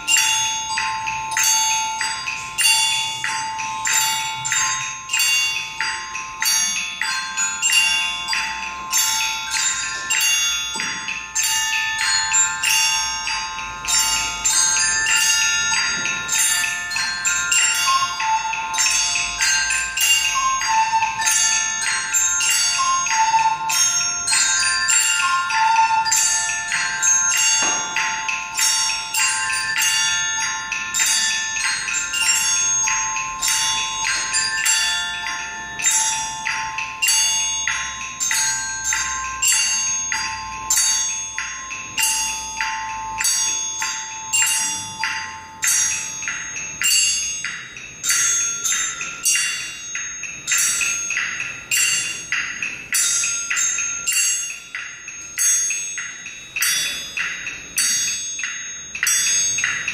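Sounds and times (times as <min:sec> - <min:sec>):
glockenspiels struck with mallets: 0:00.0 - 0:59.9
recorder playing melody: 0:20.2 - 0:22.2, 0:22.8 - 0:24.6.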